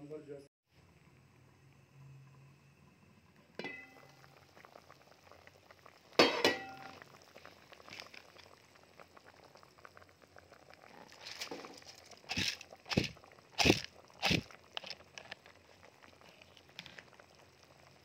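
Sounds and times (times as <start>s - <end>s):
food bubbling at the boil: 0.7s - 18.0s
pot lid clanking against pot: 3.6s - 4.0s, 6.2s - 7.0s.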